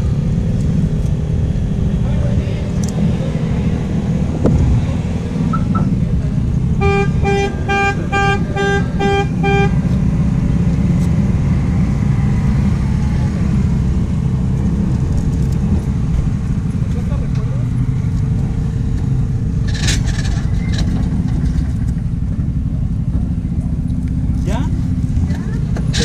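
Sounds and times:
steady low rumble: 0:00.0 - 0:26.0
short beeps: 0:05.5 - 0:06.0.

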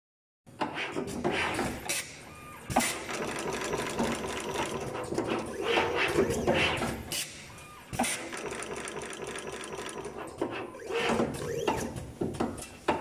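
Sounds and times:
machine humming: 0:02.1 - 0:12.0.

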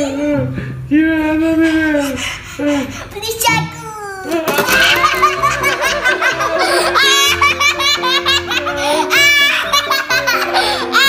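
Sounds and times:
boy laughing: 0:04.2 - 0:11.0
background music: 0:04.4 - 0:11.0
man laughing: 0:04.7 - 0:11.0.

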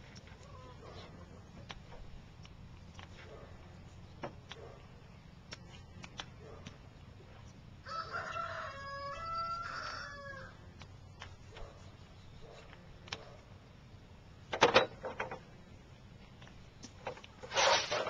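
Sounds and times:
rooster crowing: 0:07.8 - 0:10.6.

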